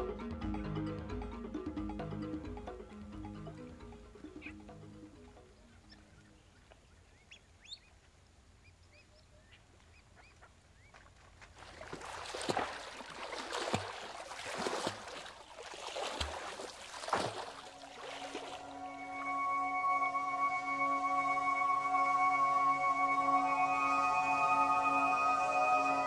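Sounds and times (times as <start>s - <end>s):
faint bird calls: 5.5s - 11.1s
loud water splashes: 11.6s - 18.9s.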